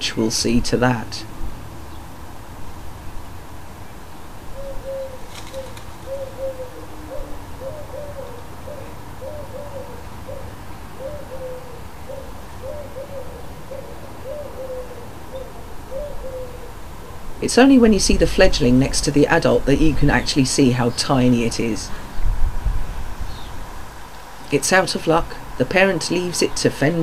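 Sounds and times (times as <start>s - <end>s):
wood pigeon cooing: 4.5s - 17.3s.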